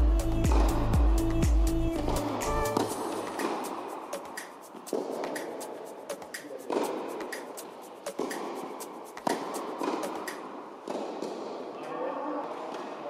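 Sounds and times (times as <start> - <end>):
tennis balls bouncing on court: 0.4 - 0.8, 2.8 - 5.6, 6.2 - 11.7
tennis balls struck by rackets: 0.4 - 0.8, 2.7 - 5.6, 6.2 - 11.8.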